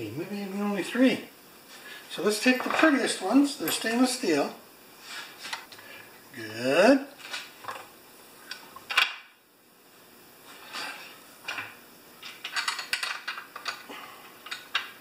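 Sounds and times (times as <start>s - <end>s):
metal parts clinking: 12.3s - 14.8s.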